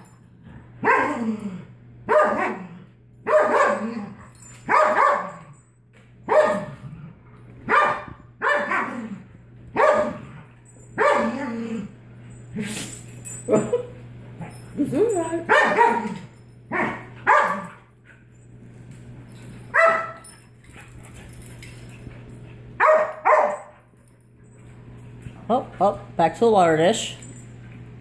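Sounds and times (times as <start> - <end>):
dog barking: 0.8 - 1.2, 2.1 - 2.6, 3.2 - 3.9, 4.7 - 5.5, 6.3 - 6.7, 7.7 - 9.0, 9.8 - 10.2, 11.0 - 11.4, 15.5 - 17.8, 19.7 - 20.2, 22.8 - 23.7.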